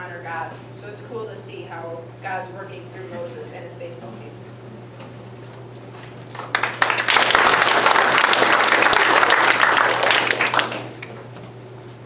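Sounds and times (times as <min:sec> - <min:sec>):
children applauding: 0:06.3 - 0:11.2.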